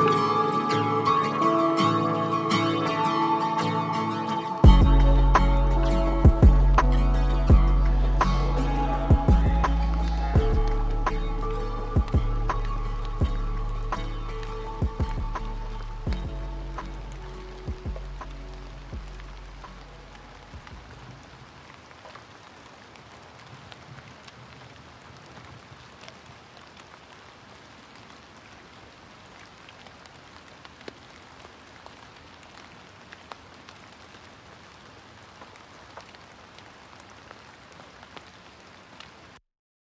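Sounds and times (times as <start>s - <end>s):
song low notes: 0.0s - 21.0s
rain patter: 0.0s - 39.4s.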